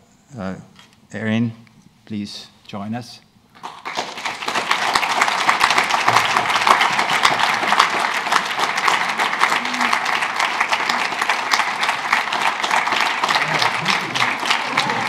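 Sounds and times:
audience applauding: 3.6s - 15.0s.

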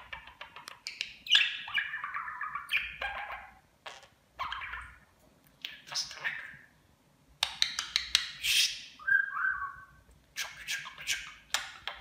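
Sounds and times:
budgerigar chattering: 0.0s - 5.0s.

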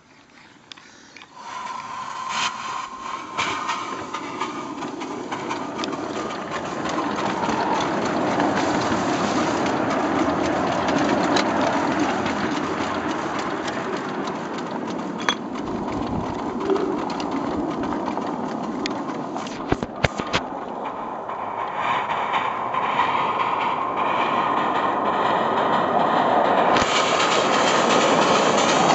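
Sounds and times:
steam locomotive rumble and hiss: 0.6s - 28.9s.

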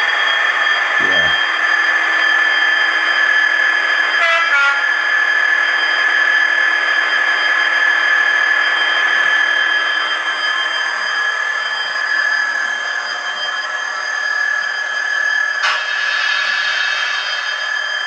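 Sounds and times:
model train diesel engine sound: 0.0s - 18.0s.

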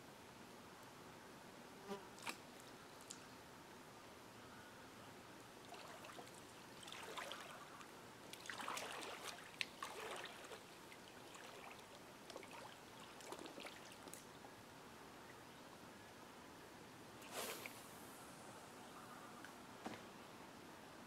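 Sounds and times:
person wading in shallow water: 5.7s - 14.0s.

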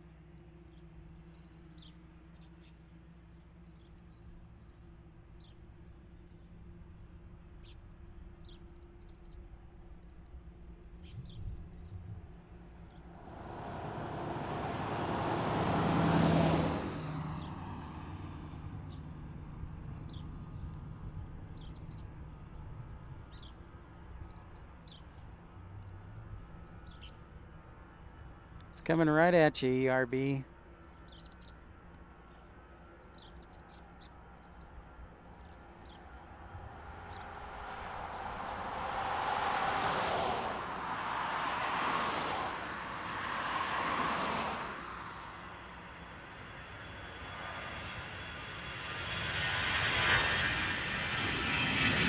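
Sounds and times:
jet airliner taking off: 13.0s - 22.6s, 35.9s - 52.0s.

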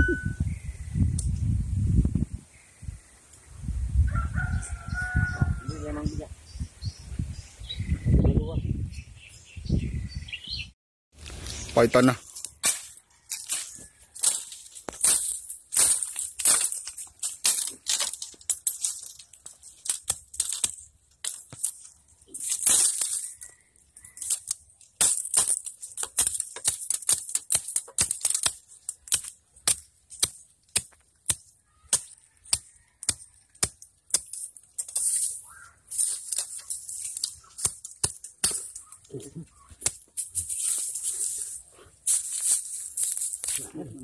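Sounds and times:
rustling of dry leaves and twigs: 11.1s - 44.0s.

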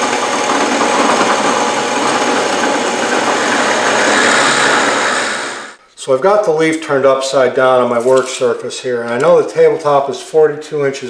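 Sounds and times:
drill press boring into wood: 0.0s - 5.8s.

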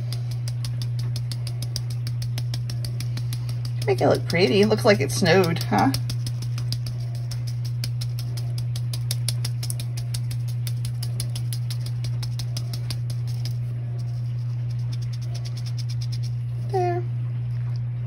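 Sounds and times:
sieve tapping light ticks: 0.0s - 16.4s
steady low hum: 0.0s - 18.0s.

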